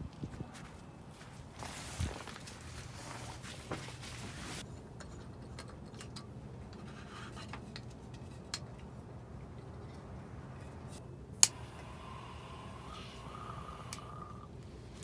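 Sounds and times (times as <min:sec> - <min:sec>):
rustling handling noise: 0:00.2 - 0:11.0.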